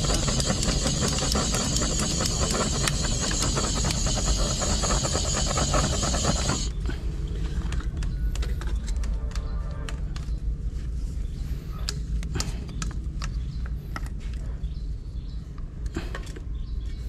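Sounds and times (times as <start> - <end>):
machine humming: 0.0 - 6.8
sharp clicks and knocks: 0.0 - 6.8.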